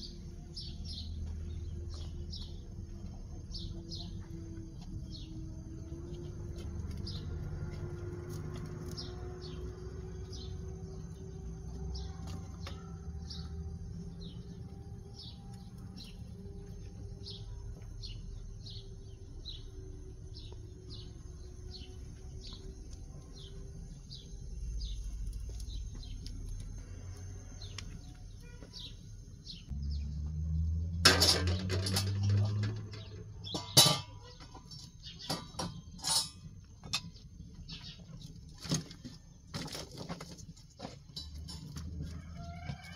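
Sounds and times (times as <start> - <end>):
small bird chirping: 0.0 - 30.1, 32.8 - 39.3
loud clatter with sharp knocks: 31.0 - 34.5.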